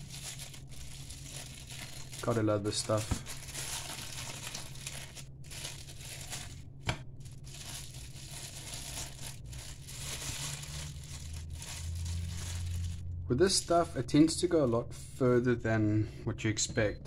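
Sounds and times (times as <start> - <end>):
plastic bag rustling: 0.0 - 13.1
plastic film crinkling: 0.0 - 13.7.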